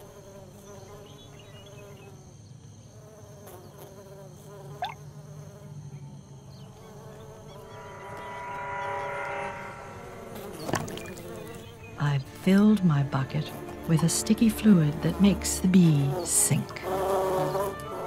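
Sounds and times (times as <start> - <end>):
bees buzzing in flight: 0.0 - 18.0
short rising whistle: 7.6 - 11.1
music: 10.6 - 18.0.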